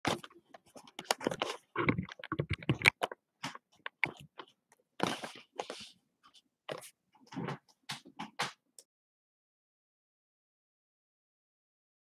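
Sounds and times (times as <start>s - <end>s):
rustling scrape: 5.0s - 6.0s.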